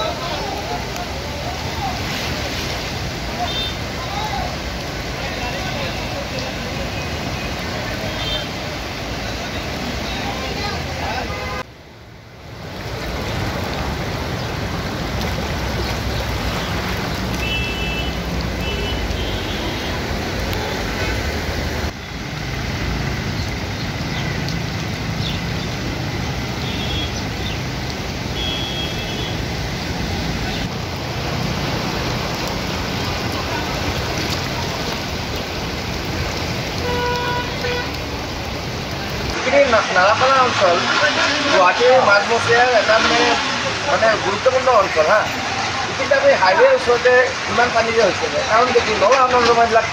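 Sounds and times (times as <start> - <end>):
floodwater rushing: 0.0 - 49.9
rain: 0.0 - 49.9
traffic driving through water: 0.0 - 49.9
vehicle horn honks: 17.4 - 19.9, 26.6 - 27.1, 28.4 - 29.4, 36.8 - 37.9.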